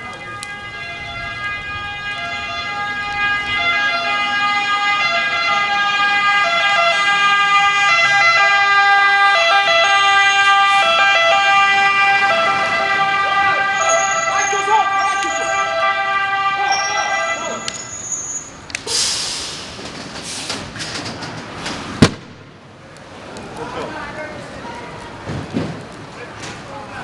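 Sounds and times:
fire engine two-tone siren: 0.0s - 18.5s.

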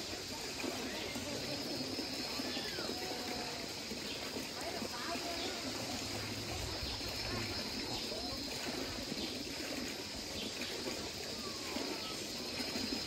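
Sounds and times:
faint voices: 0.0s - 13.0s
stream trickling over cascades: 0.0s - 13.0s.

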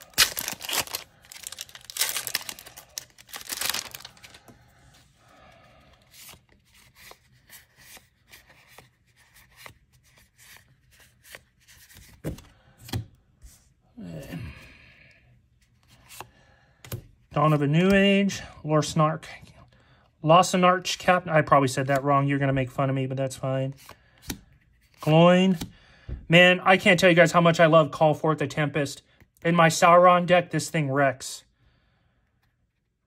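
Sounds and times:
foil wrapper tearing and crinkling: 0.0s - 4.4s
trading cards being handled: 0.0s - 5.1s, 5.8s - 13.6s.

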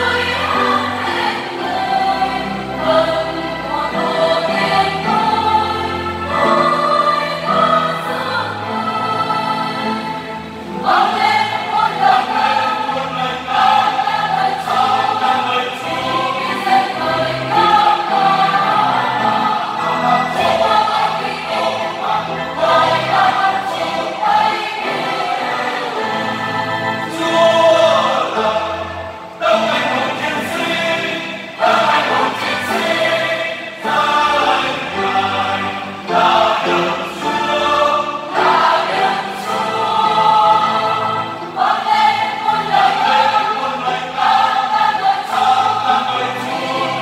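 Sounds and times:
choir singing a hymn: 0.0s - 47.0s.

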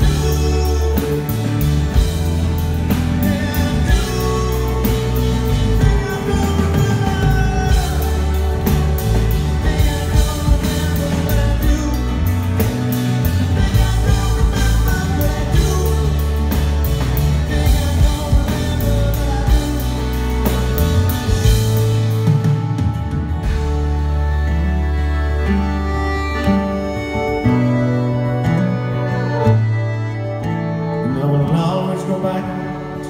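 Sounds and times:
man singing lead vocal: 0.0s - 22.4s, 30.8s - 33.0s
drums steady beat: 0.0s - 24.6s
heavy bass: 0.0s - 31.1s
pop-rock band playing: 0.0s - 33.0s.

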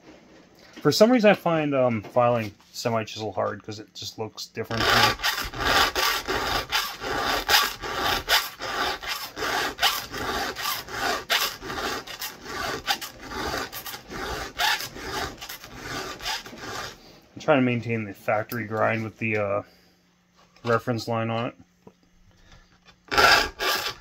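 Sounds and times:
file rasping on chainsaw chain: 4.7s - 17.0s, 23.1s - 24.0s.

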